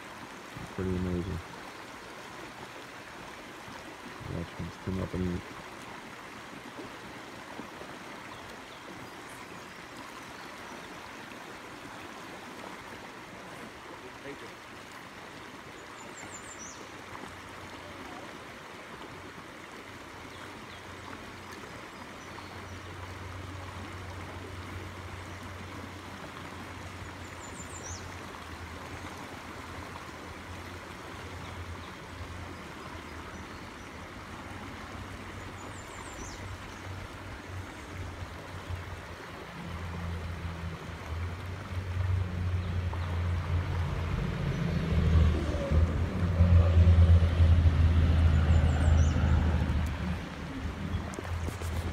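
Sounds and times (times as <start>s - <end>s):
stream flowing over rocks: 0.0s - 51.9s
low hum: 42.2s - 51.9s.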